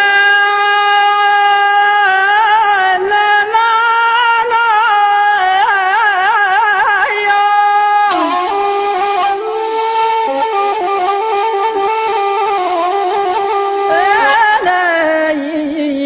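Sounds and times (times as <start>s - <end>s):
wind instrument ornamented melody: 7.7s - 14.6s.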